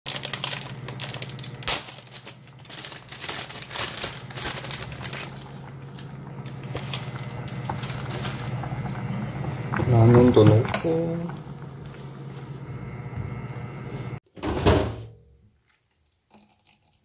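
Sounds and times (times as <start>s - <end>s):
plastic packet crinkling: 0.1s - 9.7s
steady low hum: 0.1s - 14.2s.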